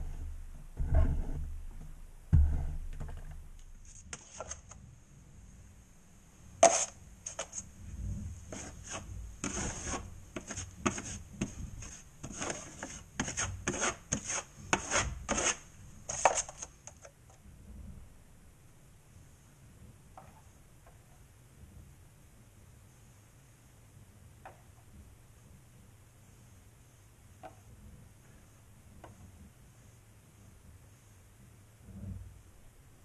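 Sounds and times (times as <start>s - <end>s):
taping knife scraping compound: 3.7s - 4.8s, 6.6s - 7.7s, 8.5s - 17.1s.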